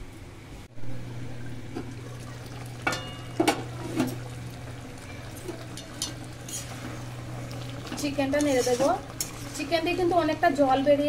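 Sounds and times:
steady low hum: 0:00.0 - 0:11.0
metal lid clinking on pan: 0:02.8 - 0:03.6
chicken sizzling in a pan: 0:02.8 - 0:10.8.

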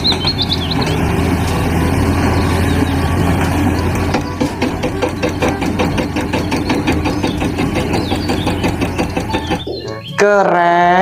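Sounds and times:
rapid knocking: 0:00.0 - 0:01.6, 0:03.0 - 0:09.9
excavator diesel engine running: 0:00.0 - 0:11.0.

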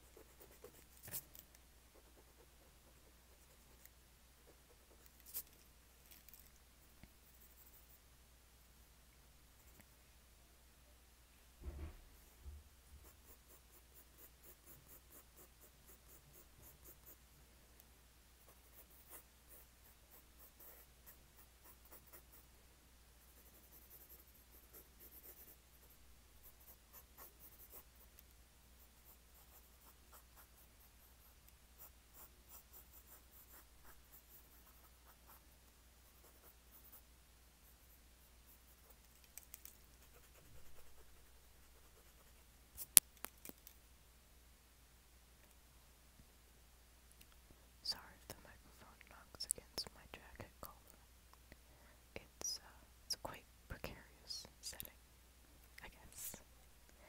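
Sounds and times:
pen scratching on paper: 0:00.0 - 0:05.6, 0:13.0 - 0:17.2, 0:18.5 - 0:22.4, 0:23.3 - 0:28.1, 0:28.8 - 0:35.4.

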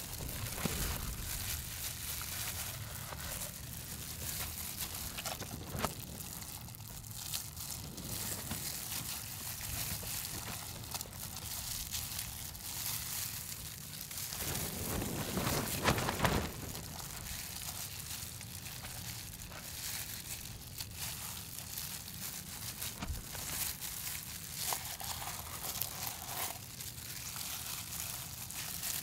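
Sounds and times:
steady low rumble: 0:00.0 - 0:20.6
crinkling and rustling: 0:00.0 - 0:29.0.

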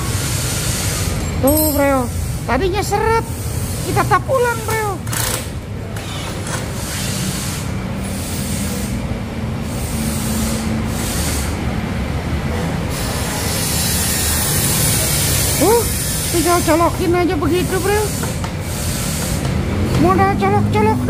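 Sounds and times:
motorbike engines passing: 0:00.0 - 0:21.0
street traffic rumble: 0:00.0 - 0:21.0.

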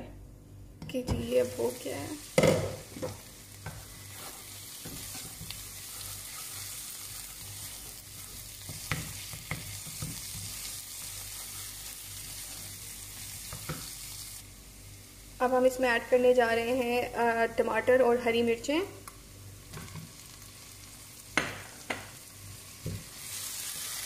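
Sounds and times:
paste sizzling in oil: 0:01.3 - 0:14.4, 0:22.3 - 0:24.0.

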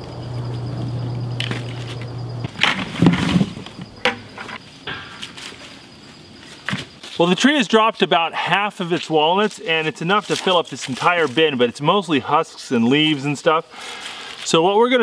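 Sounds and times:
low steady hum: 0:00.0 - 0:06.4
dry leaves rustling: 0:04.6 - 0:12.1.

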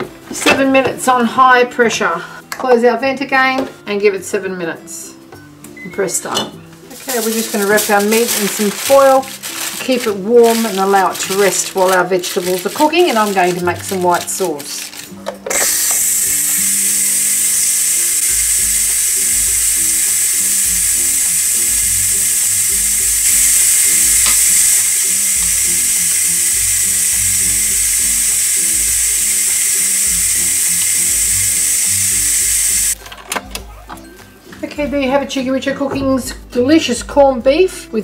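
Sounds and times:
pressure cooker steam hiss: 0:15.5 - 0:33.0.

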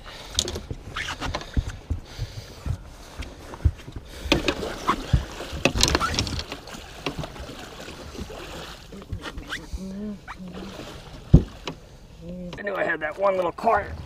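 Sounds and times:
knocks and thumps on boat deck: 0:00.2 - 0:09.9, 0:11.1 - 0:11.8
water splashing: 0:03.0 - 0:12.4.

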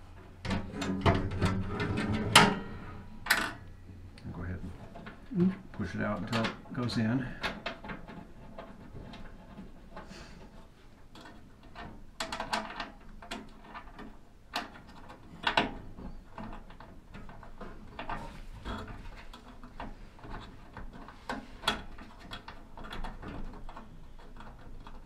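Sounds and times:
metal cabinet clicks and knocks: 0:00.2 - 0:03.6.

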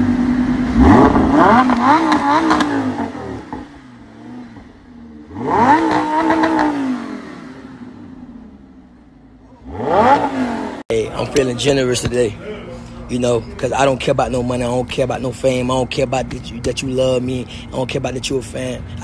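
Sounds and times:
sports car engine revving: 0:00.0 - 0:12.4.

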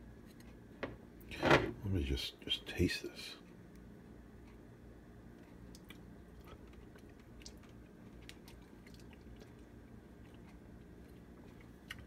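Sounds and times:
faint chewing: 0:05.3 - 0:12.0.

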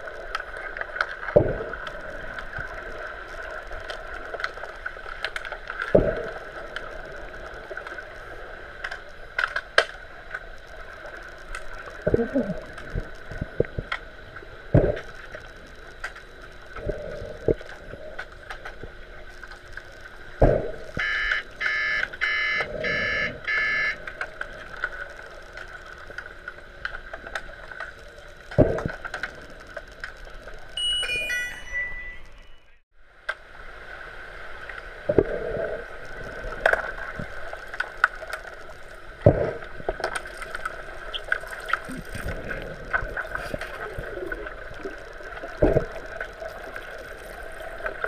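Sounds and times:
steady high hum: 0:00.0 - 0:48.0
underwater buzzer beeps: 0:21.0 - 0:24.0, 0:30.7 - 0:32.8
underwater knocks and clatter: 0:24.1 - 0:30.2, 0:44.8 - 0:48.0.

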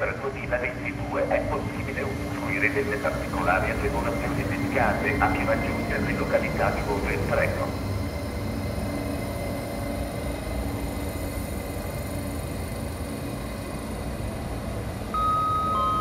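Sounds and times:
train wheels rumbling: 0:00.0 - 0:15.1
two-note station chime: 0:15.2 - 0:16.0.

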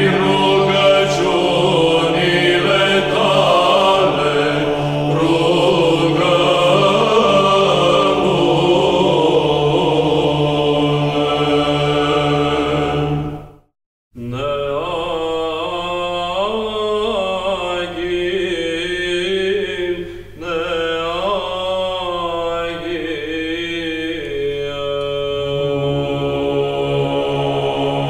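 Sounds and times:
chanted singing: 0:00.0 - 0:13.5, 0:14.2 - 0:28.0
steady low drone: 0:00.0 - 0:13.5.

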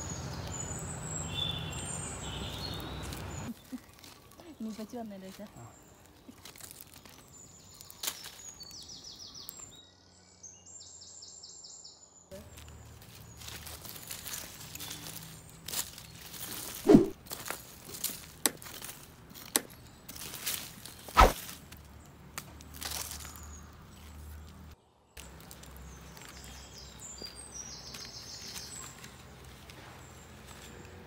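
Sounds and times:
birds chirping faintly: 0:00.0 - 0:31.0
sharp knocks and crunches: 0:13.0 - 0:21.8.

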